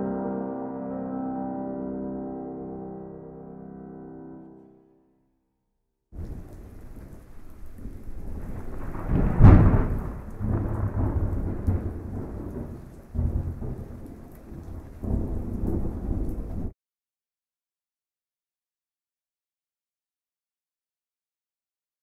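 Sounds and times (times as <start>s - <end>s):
steady rain: 6.2s - 16.7s
thunder rumbling: 6.2s - 16.7s.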